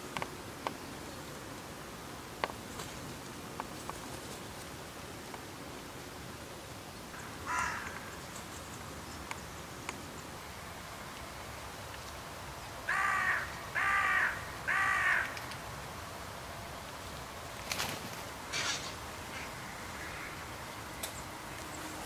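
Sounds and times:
crows cawing: 7.2s - 8.2s, 12.8s - 15.6s, 19.6s - 20.6s.

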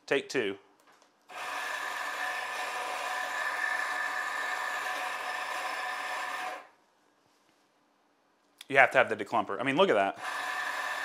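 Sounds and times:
coffee grinder whirring: 1.3s - 6.7s, 10.1s - 11.0s.

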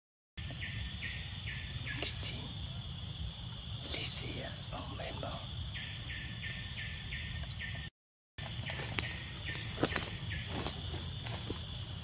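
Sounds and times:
high-pitched insect chorus: 0.4s - 12.0s
clicks and rustles in dry leaves: 8.6s - 11.7s.

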